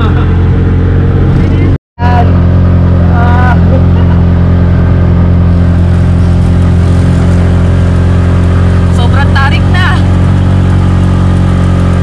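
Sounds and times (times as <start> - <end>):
auto rickshaw engine droning: 0.0 - 12.0.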